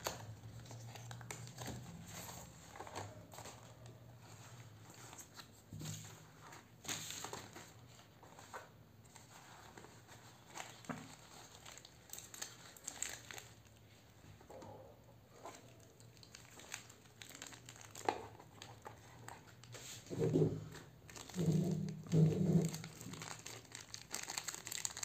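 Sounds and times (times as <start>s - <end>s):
plastic packaging crinkling: 9.2s - 13.9s, 15.3s - 20.0s, 20.8s - 25.0s.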